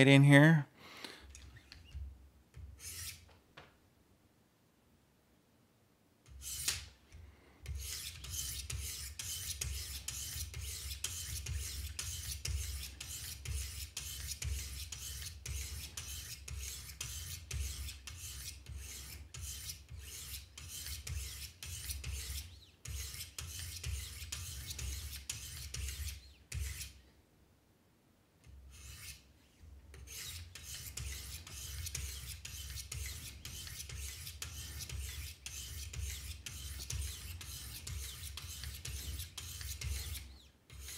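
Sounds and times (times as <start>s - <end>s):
sharpening stones rasping on blade: 2.8s - 3.2s, 6.3s - 6.8s, 7.6s - 27.0s, 28.7s - 29.3s, 30.0s - 40.9s.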